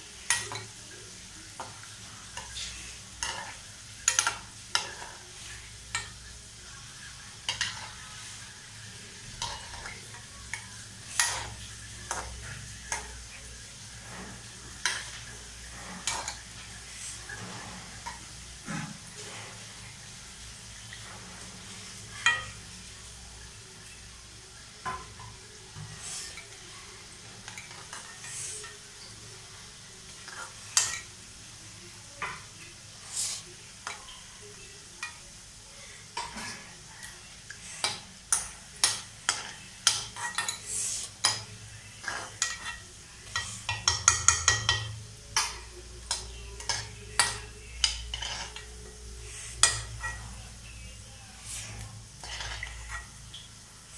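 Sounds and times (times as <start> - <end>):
deep-frying sizzle in oil: 0.0 - 53.9
steel spoon clinking on pan: 22.2 - 22.6, 30.4 - 31.1, 37.8 - 48.7.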